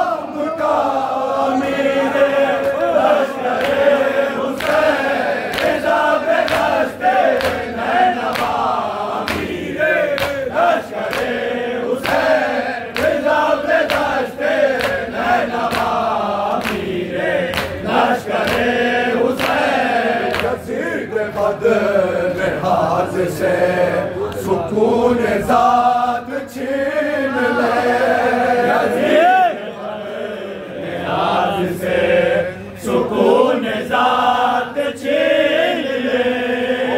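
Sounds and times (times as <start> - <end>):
men chanting in unison: 0.0 - 36.9
hands slapping chests: 4.5 - 11.4, 12.0 - 16.9, 17.5 - 20.6.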